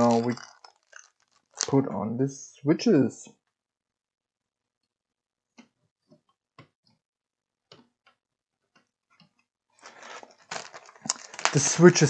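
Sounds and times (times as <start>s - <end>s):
faint clicks and taps of parts: 7.6s - 11.5s
handling noise: 9.8s - 12.0s.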